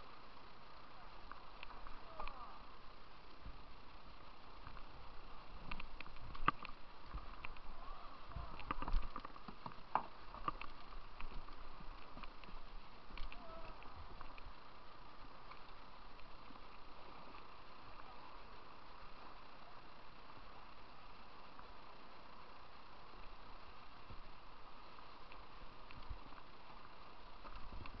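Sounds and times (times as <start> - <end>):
paddle and hull knocking on rocks: 5.7 - 14.4.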